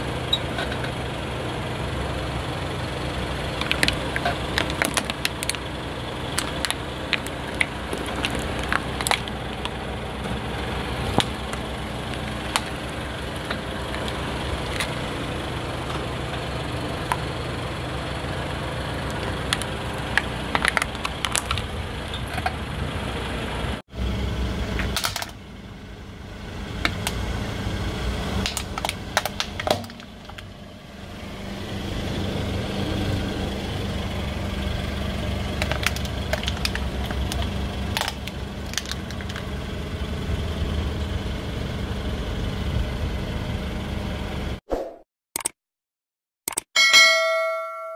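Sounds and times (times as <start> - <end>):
car engine idling: 0.0 - 44.6
plastic cracking and snapping: 6.3 - 9.7, 19.5 - 21.6, 28.5 - 30.4, 35.6 - 39.4.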